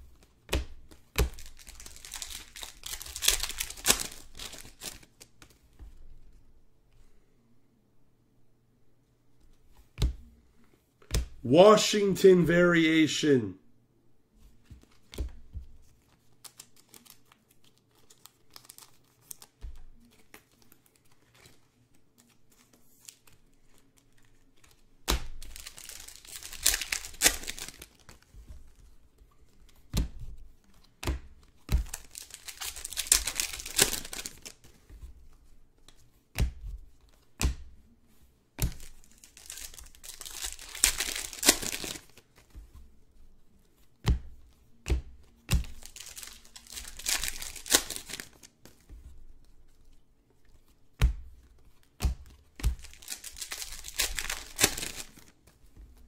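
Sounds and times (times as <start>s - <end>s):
cards tapping and clicking: 0.0s - 5.6s, 24.0s - 28.6s, 29.4s - 35.0s, 35.8s - 37.7s, 38.6s - 42.7s, 44.0s - 49.0s, 51.0s - 56.0s
wrappers tearing and crinkling: 1.3s - 5.2s, 16.4s - 20.5s, 25.3s - 28.1s, 31.8s - 34.6s, 38.8s - 42.3s, 45.7s - 48.6s, 52.8s - 55.4s.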